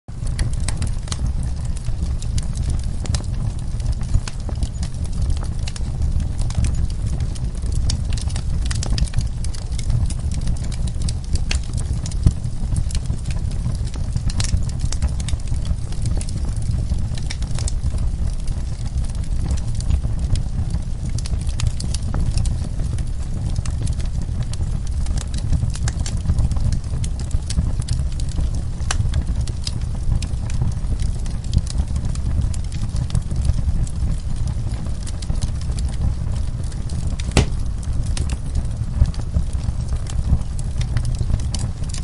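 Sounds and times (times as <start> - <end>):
fire crackling and popping: 0.1 - 42.0
fire rumbling: 0.1 - 42.0.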